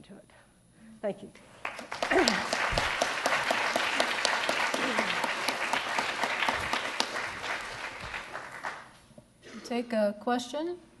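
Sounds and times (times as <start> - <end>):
audience applauding: 1.6 - 9.0.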